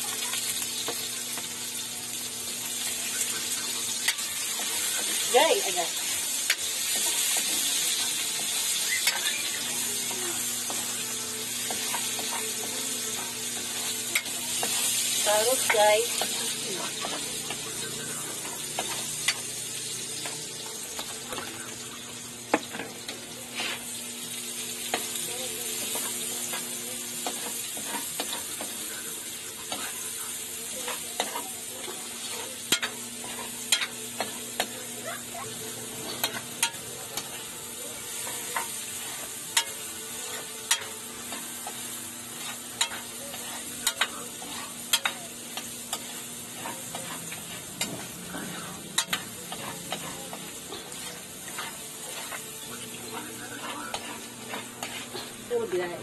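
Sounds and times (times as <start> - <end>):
food sizzling in oil: 0.0 - 56.0
metal spatula scraping pan: 38.2 - 55.7.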